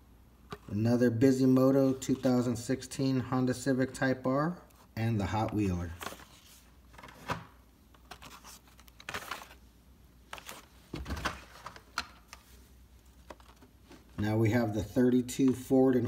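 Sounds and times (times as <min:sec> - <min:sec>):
plastic packaging clicks and crinkles: 0:07.9 - 0:09.6.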